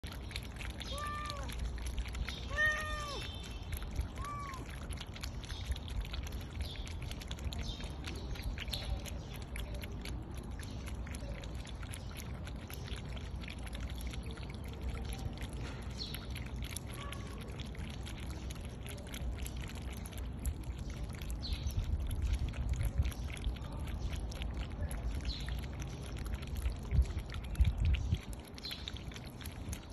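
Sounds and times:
cats lapping from a dish: 0.0 - 29.9
cat meowing: 0.9 - 1.5, 2.5 - 3.3, 4.2 - 4.7.

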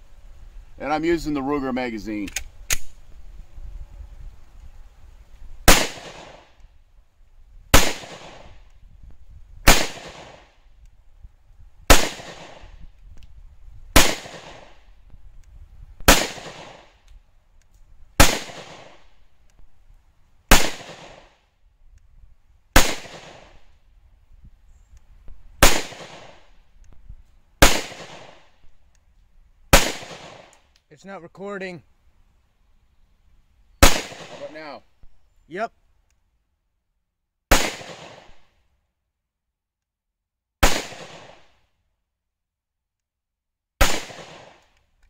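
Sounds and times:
pistol shots with ringing tail: 5.7 - 6.5, 7.7 - 8.6, 9.6 - 10.5, 11.9 - 12.7, 14.0 - 14.8, 16.1 - 16.9, 18.2 - 19.0, 20.5 - 21.3, 22.8 - 23.6, 25.6 - 26.4, 27.6 - 28.4, 29.8 - 30.5, 33.8 - 34.6, 37.5 - 38.5, 40.6 - 41.5, 43.8 - 44.6.

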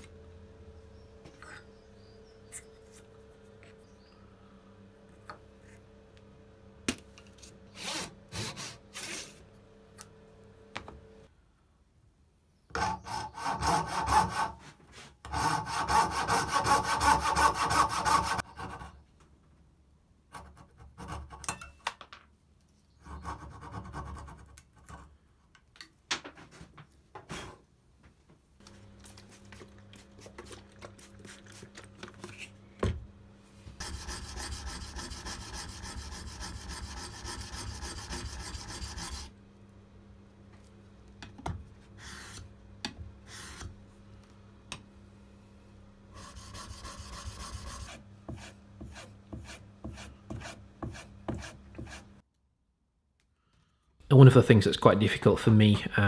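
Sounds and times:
hand saw sawing wood: 12.8 - 18.9, 33.8 - 39.3, 46.2 - 52.1
coping saw strokes: 33.8 - 39.3.

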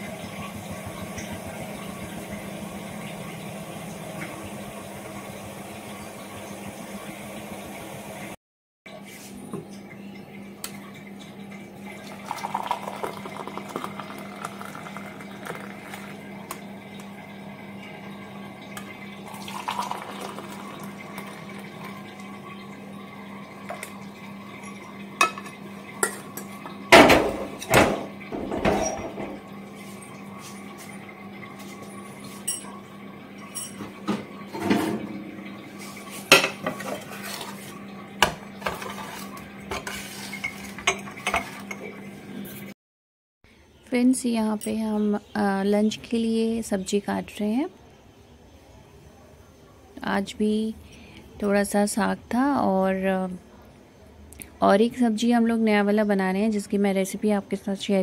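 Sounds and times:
tea pouring into cups: 11.9 - 17.2, 18.2 - 26.6.

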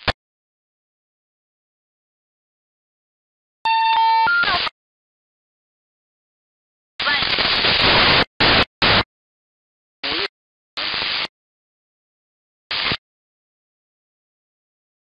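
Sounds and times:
radio static hiss bursts: 7.0 - 9.1, 10.0 - 11.3, 12.7 - 13.0.

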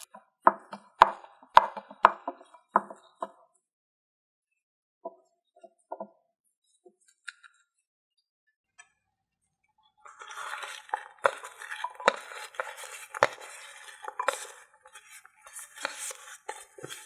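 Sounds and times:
metal tray scraping ceramic bowl: 10.1 - 17.0.

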